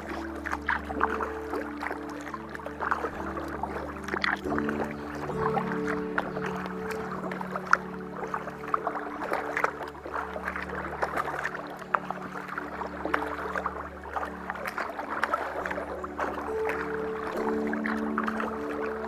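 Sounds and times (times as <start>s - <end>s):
paddle blades splashing: 0.0s - 19.0s
water dripping off paddle: 0.0s - 19.0s.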